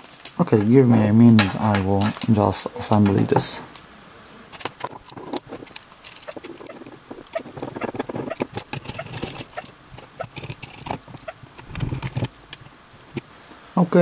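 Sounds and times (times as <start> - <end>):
metal parts clicking and scraping: 4.5 - 13.2.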